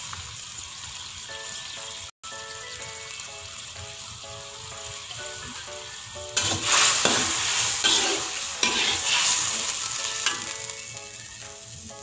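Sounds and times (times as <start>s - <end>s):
metal spatula scraping wok: 5.3s - 10.8s.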